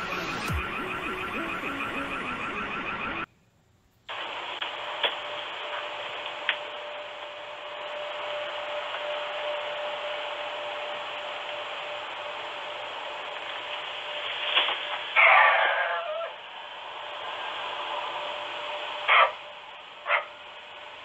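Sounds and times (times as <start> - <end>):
steady microphone hiss: 3.3 - 15.2.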